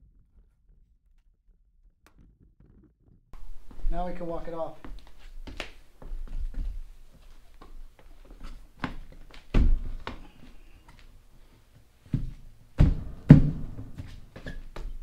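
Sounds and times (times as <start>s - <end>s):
dull thuds and knocks on tire: 12.2s - 14.2s.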